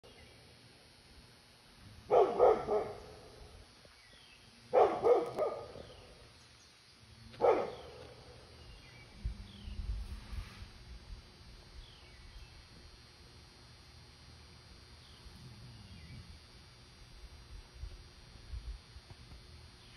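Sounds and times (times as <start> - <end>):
dog barking: 2.1 - 3.4, 4.7 - 5.9, 7.4 - 8.2.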